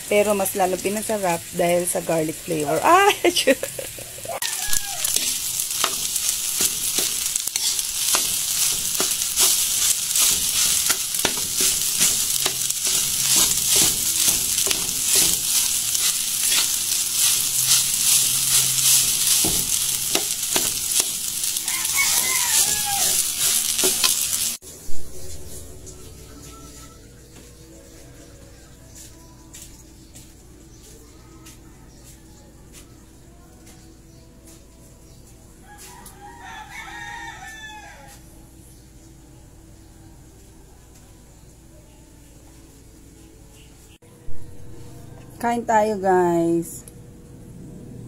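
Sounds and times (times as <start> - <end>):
rice sizzling in a wok: 0.0 - 25.4
metal spoon scraping pan: 5.0 - 24.6.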